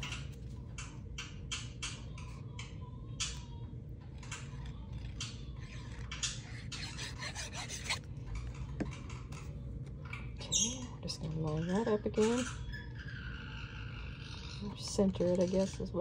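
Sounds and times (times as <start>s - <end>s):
bottle tip scratching cardstock: 6.6s - 8.0s.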